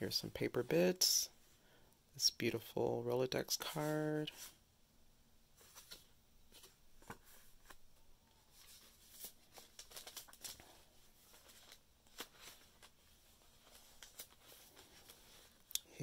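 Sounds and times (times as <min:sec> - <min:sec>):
paper rustling and crinkling: 0:05.6 - 0:15.7.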